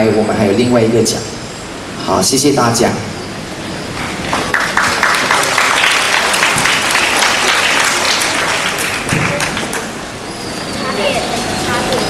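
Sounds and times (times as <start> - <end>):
audience applauding: 4.3 - 10.2.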